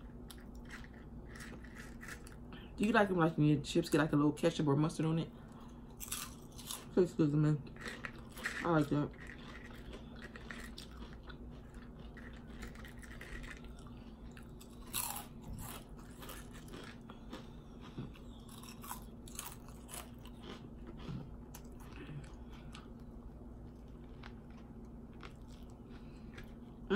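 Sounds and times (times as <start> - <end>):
person chewing and smacking: 7.7 - 26.9.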